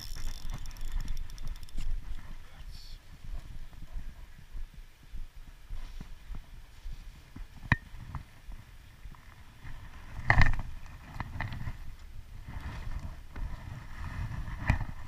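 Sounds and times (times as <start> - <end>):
fishing reel grinding: 0.0 - 2.1.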